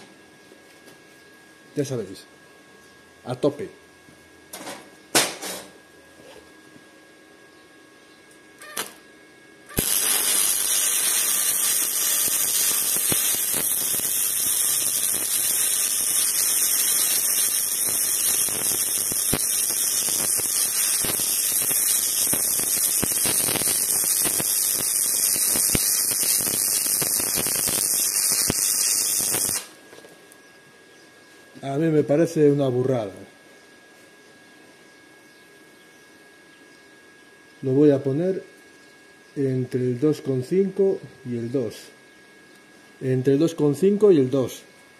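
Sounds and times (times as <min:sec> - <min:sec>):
welding arc hissing and crackling: 0:08.6 - 0:09.0, 0:09.7 - 0:30.1.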